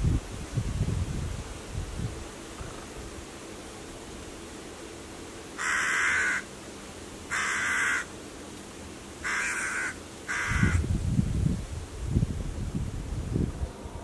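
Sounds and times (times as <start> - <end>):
crow cawing: 5.6 - 6.5, 7.3 - 8.1, 9.2 - 10.9.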